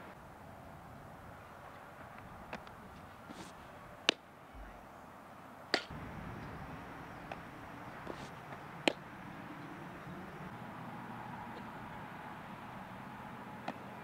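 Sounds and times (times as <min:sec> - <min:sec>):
ball smacking into leather mitt: 0:08.0 - 0:09.0.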